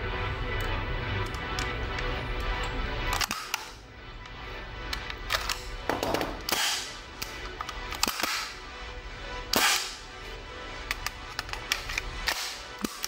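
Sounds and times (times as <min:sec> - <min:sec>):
gun metallic clicks and knocks: 0:00.6 - 0:08.5, 0:10.8 - 0:13.0.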